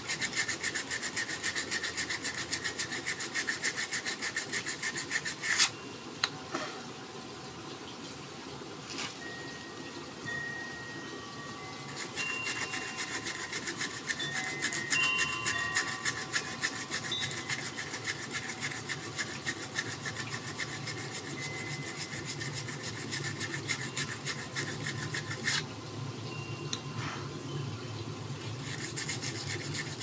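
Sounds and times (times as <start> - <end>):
sandpaper rubbing on wood: 0.0 - 5.7, 11.9 - 25.6, 28.6 - 30.0.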